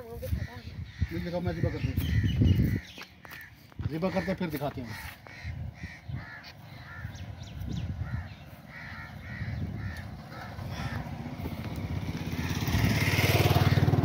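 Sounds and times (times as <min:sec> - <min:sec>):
harsh bird calls: 0:00.0 - 0:14.0
motorcycle engine: 0:06.3 - 0:14.0.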